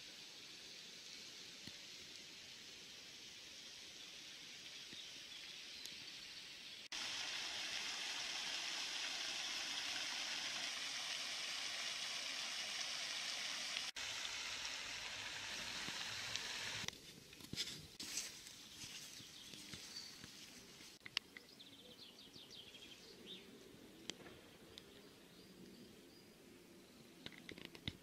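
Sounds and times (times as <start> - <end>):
fountain spray splashing on water: 0.0 - 16.9
outdoor ambience: 0.0 - 28.0.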